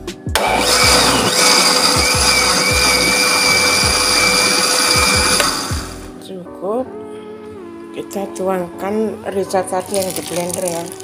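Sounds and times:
blender running: 0.4s - 6.1s.

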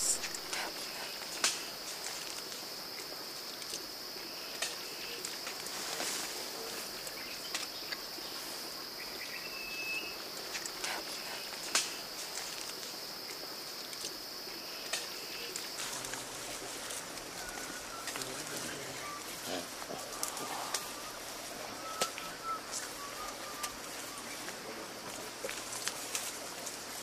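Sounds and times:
high insect drone: 0.0s - 27.0s
sharp snaps: 11.6s - 12.0s
whistled bird note: 21.8s - 24.4s.

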